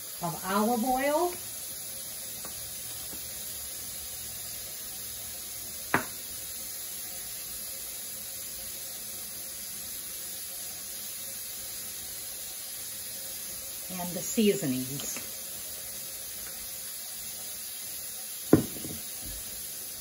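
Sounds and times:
glass bottle knock: 5.9 - 6.2, 18.5 - 19.1.

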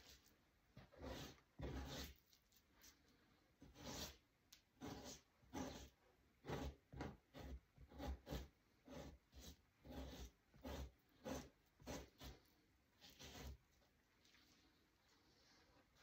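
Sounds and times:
knife scraping hide: 0.0 - 3.0, 3.6 - 4.2, 4.8 - 13.8.

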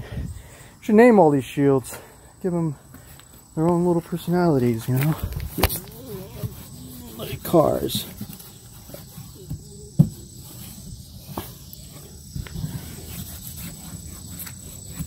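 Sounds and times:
sanding block scuffing fabric: 5.7 - 15.0.

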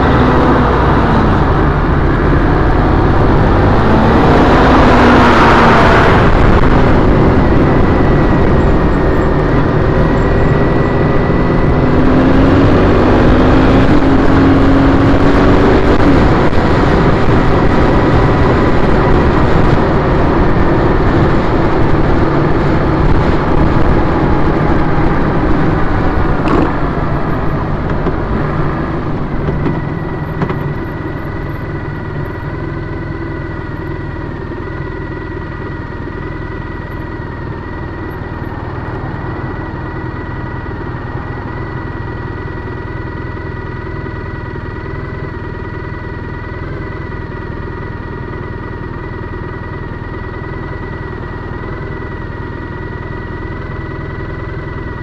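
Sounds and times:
motorcycle engine running: 0.0 - 55.0
wind and road noise: 0.0 - 55.0
motorcycle engine idling: 24.2 - 55.0.

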